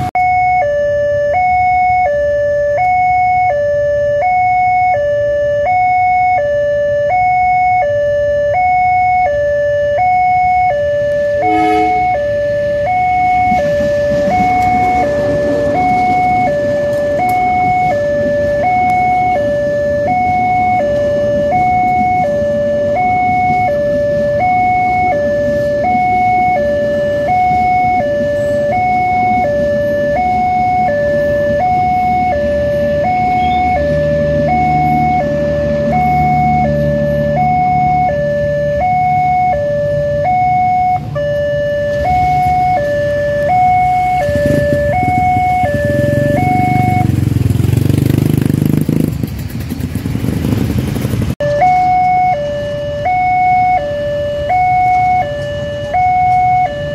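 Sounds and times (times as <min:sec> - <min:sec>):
two-tone crossing siren: 0:00.0 - 0:56.9
train wheels rumbling on rails: 0:11.0 - 0:52.2
train horn blast: 0:11.2 - 0:17.9.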